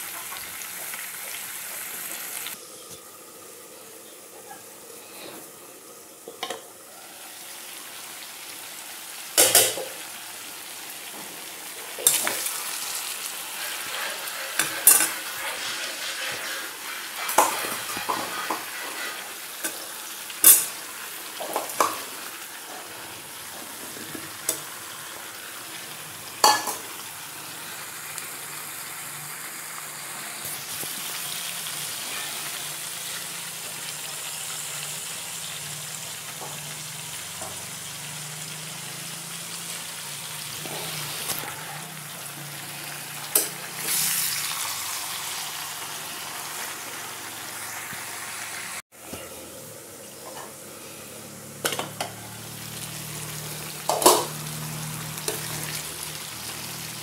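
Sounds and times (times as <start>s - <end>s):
curry sizzling in a pan: 0.0s - 57.0s
steel spoon scraping a pan: 12.0s - 20.8s, 31.7s - 32.8s.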